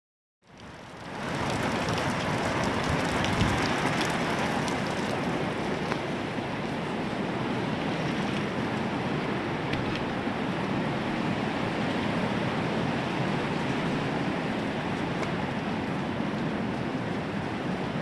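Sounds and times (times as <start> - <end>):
steady rain hiss: 0.5 - 7.9.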